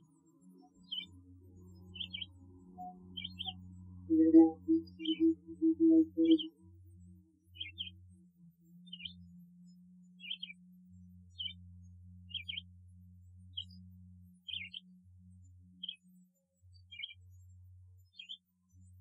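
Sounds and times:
faint high chirps: 2.8s - 6.6s
low pulsed hooting: 4.1s - 6.5s.

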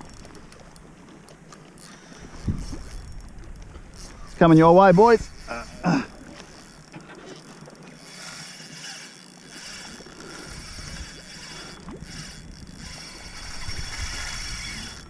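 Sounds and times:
water rushing along kayak hull: 0.0s - 15.0s
wind buffeting microphone: 2.1s - 7.0s, 10.0s - 15.0s.

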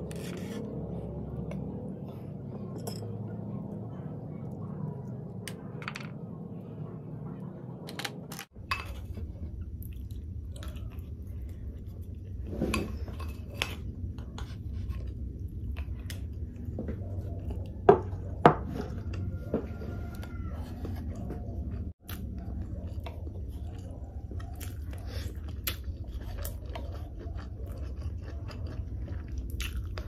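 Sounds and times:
close chewing: 9.3s - 30.0s.

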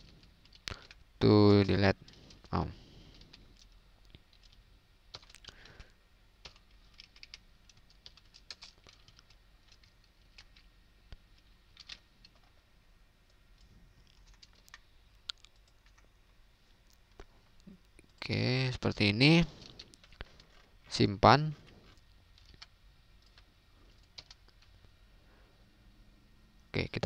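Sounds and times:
computer keyboard typing: 0.0s - 1.0s, 1.6s - 10.7s, 11.4s - 12.6s, 13.6s - 16.1s, 21.9s - 24.8s.

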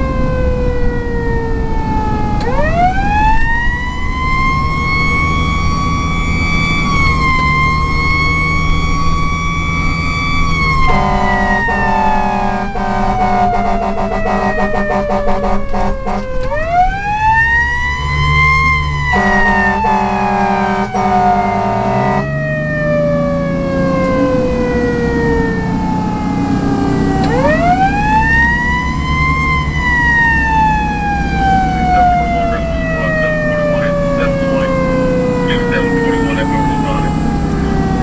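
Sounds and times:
diesel truck engine accelerating: 0.0s - 38.0s
mechanical siren wailing: 0.0s - 38.0s
air horn blasts: 10.7s - 16.5s, 19.0s - 22.3s.

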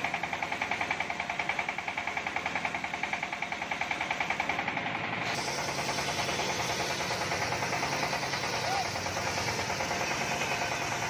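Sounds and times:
circular saw cutting wood: 5.2s - 11.0s.

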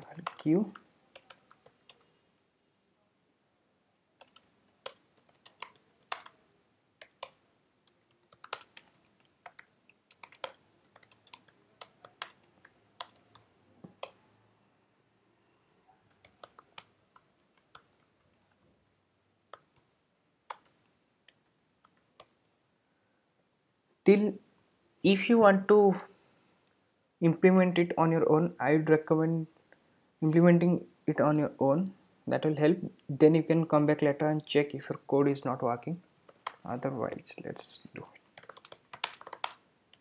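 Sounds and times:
keyboard typing clicks: 4.2s - 6.4s, 7.0s - 14.2s, 16.1s - 18.4s, 36.3s - 36.6s, 38.4s - 40.0s.

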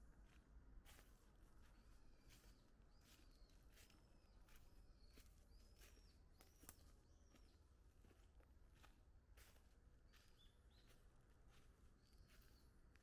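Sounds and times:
bird chirping: 10.1s - 11.0s.

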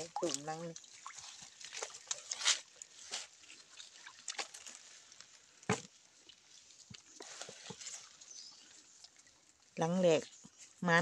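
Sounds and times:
boots wading through muddy water: 0.0s - 11.0s.

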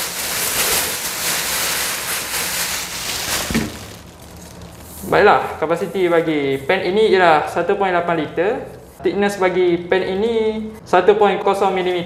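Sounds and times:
plastic bag rustling: 0.0s - 5.3s.

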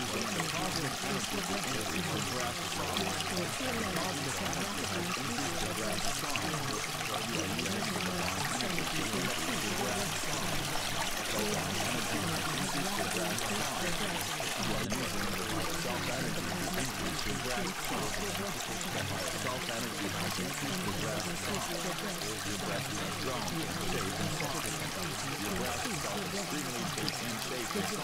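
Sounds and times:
running water rushing: 0.0s - 28.0s.

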